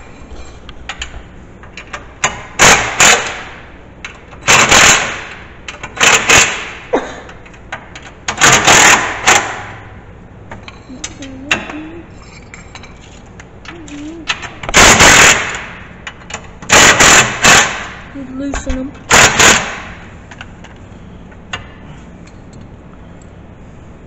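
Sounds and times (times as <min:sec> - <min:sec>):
impact driver hammering: 0:08.3 - 0:09.8, 0:16.7 - 0:18.0, 0:19.1 - 0:20.0.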